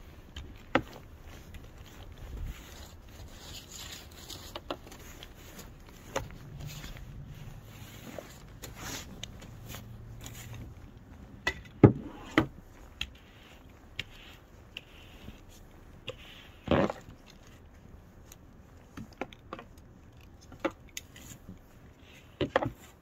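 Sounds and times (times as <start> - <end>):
brush scraping snow off windshield: 1.0 - 10.9, 12.0 - 17.6.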